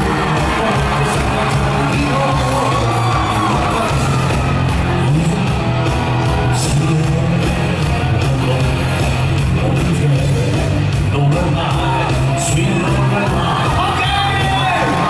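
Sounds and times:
man singing into microphone: 0.0 - 5.8, 6.5 - 14.9
fans yelling: 0.0 - 15.0
upbeat dance track over pa: 0.0 - 15.0.

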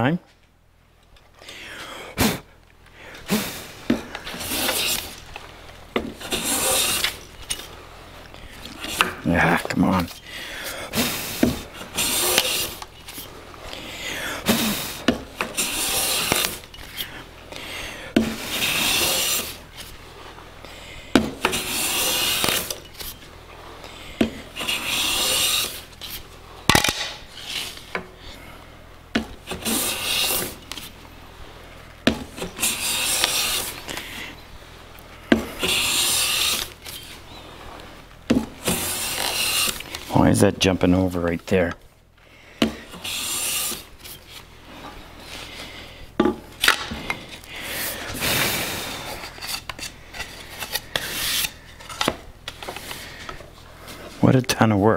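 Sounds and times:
hand plane rasping on wood: 3.3 - 5.2, 6.1 - 7.3, 10.9 - 12.8, 14.0 - 17.1, 18.2 - 19.6, 21.4 - 22.8, 24.2 - 25.9, 29.5 - 30.6, 32.4 - 33.9, 35.4 - 37.0, 38.6 - 39.9, 42.7 - 43.9.

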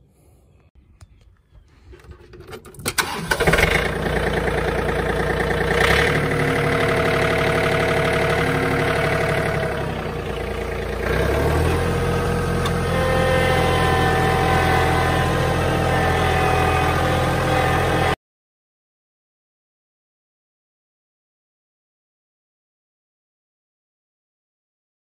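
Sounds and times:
tractor engine starting and running: 1.5 - 18.2.

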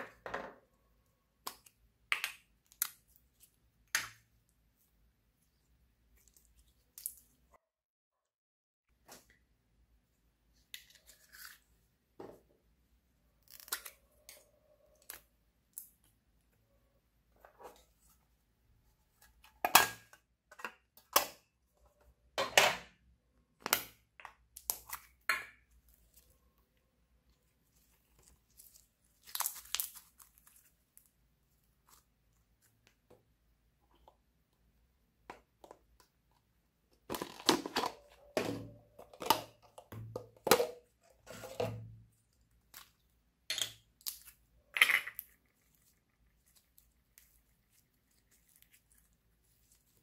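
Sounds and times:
small containers clicking and knocking: 1.4 - 3.2, 35.2 - 49.2
scrape or crinkle: 10.8 - 11.8, 41.2 - 41.6, 45.6 - 50.0.

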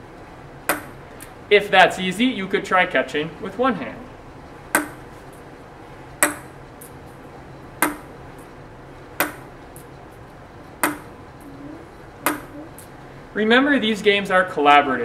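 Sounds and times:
ping pong ball bouncing on desk: 0.7 - 1.0, 4.8 - 5.0, 6.2 - 6.5, 7.8 - 8.1, 9.2 - 9.5, 10.8 - 11.1, 12.2 - 12.6.

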